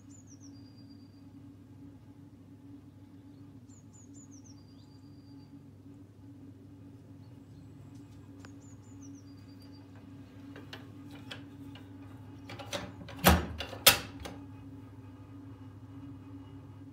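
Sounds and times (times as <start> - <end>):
window clicks and rattles: 10.4 - 14.4.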